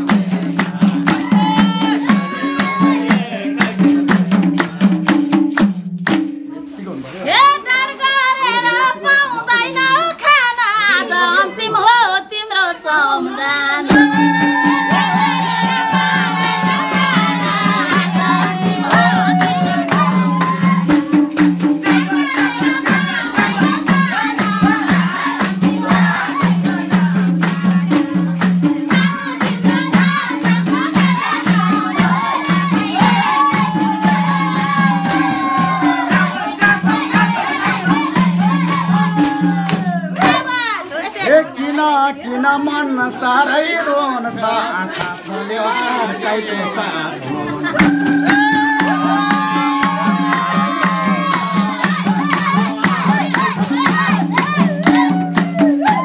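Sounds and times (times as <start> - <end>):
folk instrumental with beat: 0.0 - 6.8, 13.8 - 41.1, 47.6 - 56.0
shaken percussion: 0.0 - 7.1, 13.0 - 41.3, 44.8 - 46.3, 47.6 - 56.0
person singing folk melody: 7.3 - 56.0.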